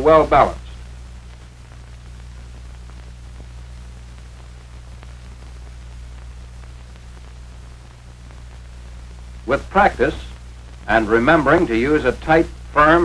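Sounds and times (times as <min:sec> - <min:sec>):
faint crackles: 0:00.0 - 0:13.0
low hum: 0:00.0 - 0:13.0.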